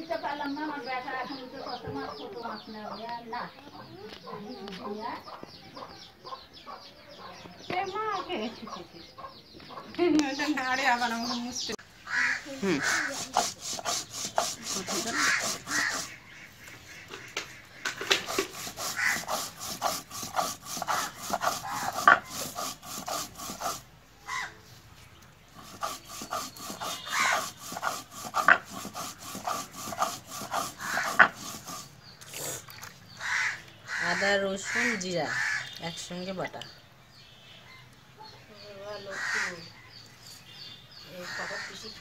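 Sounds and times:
stone roller grinding on stone slab: 12.8 - 16.2, 17.9 - 23.9, 25.6 - 32.0.

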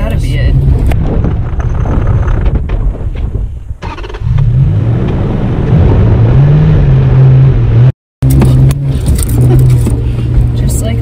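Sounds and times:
engine revving: 3.8 - 11.0.

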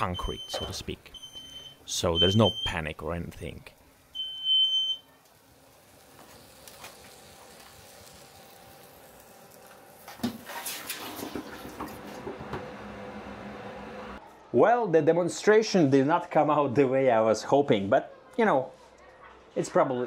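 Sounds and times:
smoke alarm beeping: 0.0 - 2.9, 4.1 - 5.1.

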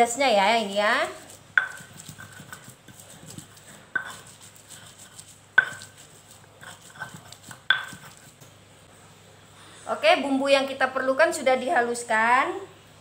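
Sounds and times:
stone pestle scraping on stone: 0.7 - 8.5
stone knocking on stone: 1.6 - 2.7, 3.3 - 4.3, 5.6 - 5.9, 6.6 - 8.2.

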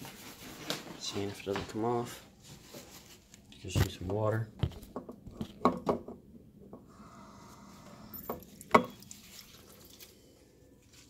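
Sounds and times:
dishes clattering in a sink: 8.3 - 9.1.

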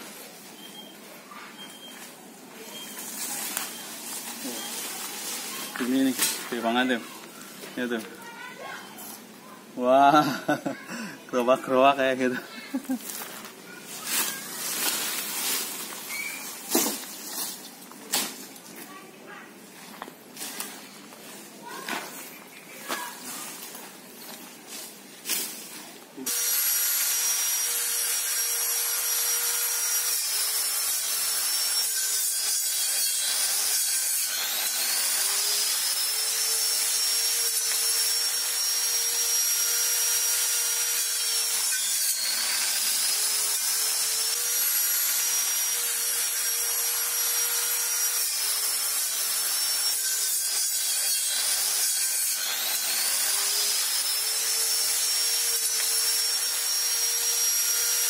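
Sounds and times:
electric pole saw cutting branches: 2.9 - 8.1, 24.8 - 58.0.

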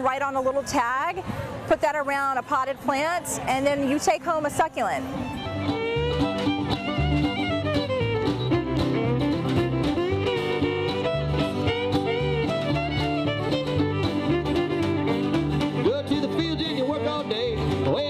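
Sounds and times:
fiddle: 4.4 - 18.0
acoustic guitar: 5.2 - 18.0
walking upright bass: 5.2 - 18.0.

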